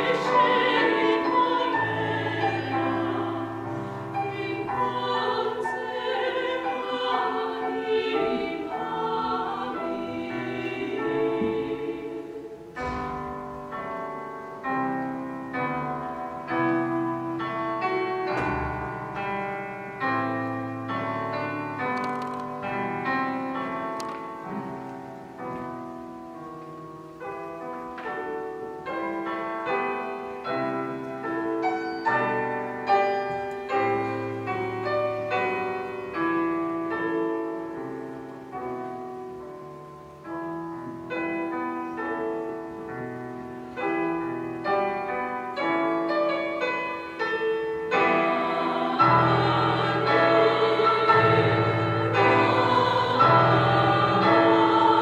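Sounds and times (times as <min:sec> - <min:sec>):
women singing together: 0:00.0 - 0:12.6, 0:47.9 - 0:55.0
slow piano chords: 0:00.0 - 0:55.0.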